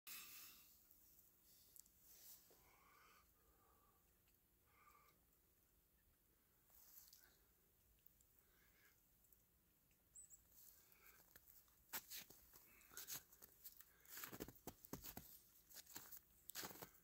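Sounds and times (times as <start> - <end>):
faint crackles and crunches: 6.6 - 17.0.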